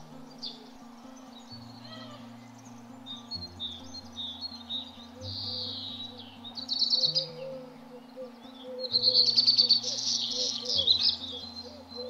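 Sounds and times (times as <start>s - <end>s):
soft sustained low notes: 0.0s - 12.0s
songbirds chirping: 0.0s - 12.0s.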